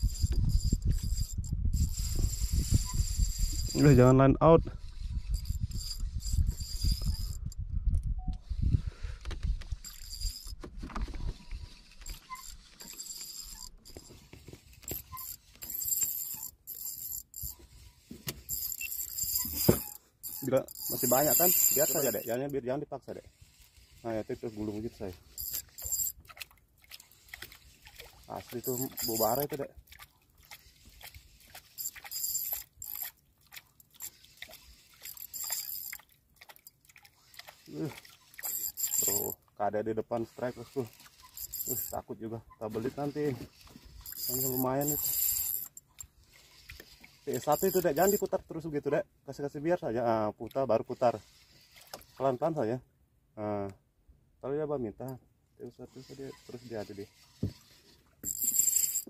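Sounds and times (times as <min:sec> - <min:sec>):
fishing reel gears whining: 0:00.0 - 0:04.1, 0:04.8 - 0:07.6, 0:09.8 - 0:10.6, 0:11.6 - 0:22.6, 0:23.3 - 0:26.2, 0:27.0 - 0:29.6, 0:30.6 - 0:33.2, 0:33.9 - 0:36.0, 0:36.6 - 0:39.4, 0:40.2 - 0:42.0, 0:42.8 - 0:48.4, 0:55.9 - 0:59.0.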